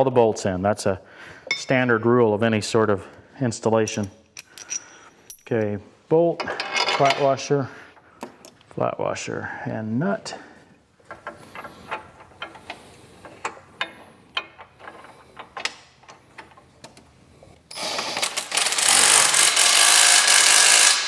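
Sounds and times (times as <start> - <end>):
metal clinks of bolt and nut: 3.9 - 5.7, 6.4 - 7.3, 11.0 - 17.0.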